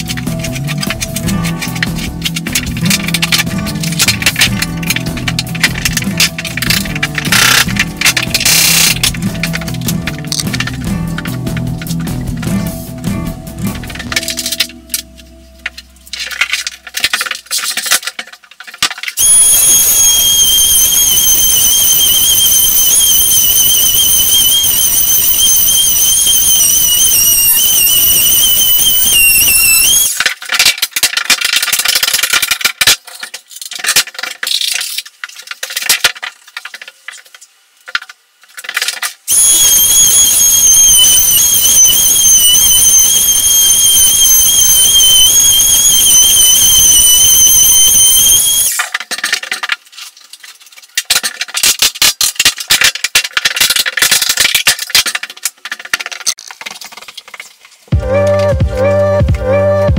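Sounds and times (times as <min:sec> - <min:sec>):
power tool motor whining: 0:39.3 - 0:48.8.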